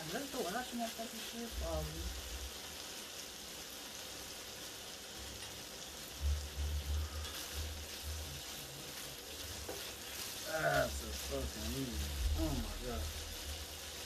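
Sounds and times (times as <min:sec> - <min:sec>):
sausage sizzling in a pan: 0:00.0 - 0:14.0
spatula pushing food in pan: 0:04.0 - 0:14.0.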